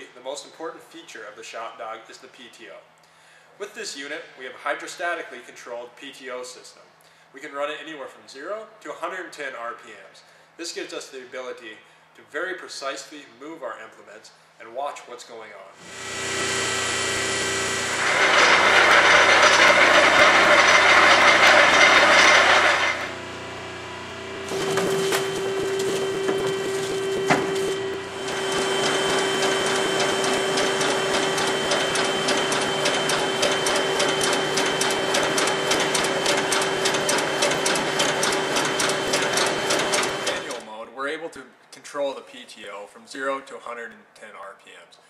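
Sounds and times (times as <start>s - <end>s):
loud rushing mechanical noise: 15.8s - 40.6s
machine hum: 15.8s - 40.6s
rapid clatter of moving reel: 17.9s - 23.1s, 24.5s - 40.6s.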